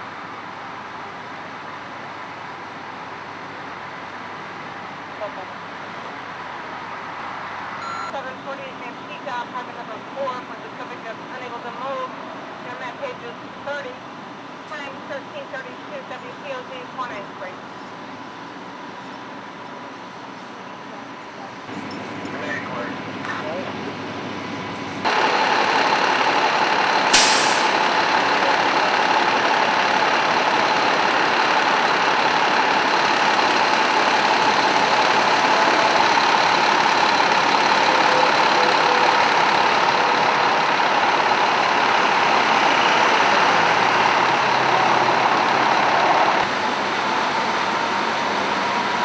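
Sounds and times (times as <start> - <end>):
diesel engine idling: 20.9 - 49.0
air brake hiss: 27.1 - 27.8.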